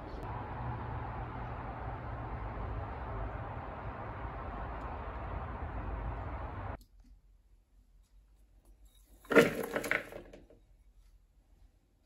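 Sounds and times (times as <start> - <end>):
currants rattling into plastic bowl: 9.3 - 10.4.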